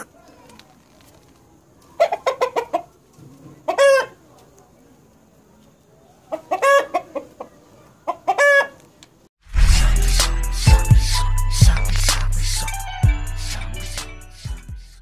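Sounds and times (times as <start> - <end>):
rooster clucking and calling: 2.0 - 3.0, 3.6 - 4.2, 6.3 - 8.8.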